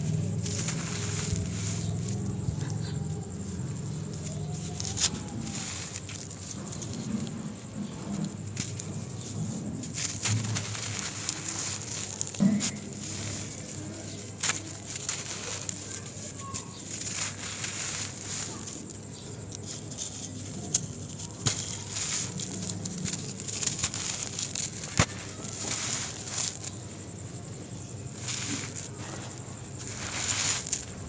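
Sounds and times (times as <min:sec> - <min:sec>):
hands crushing dry sand ball: 0:00.0 - 0:31.0.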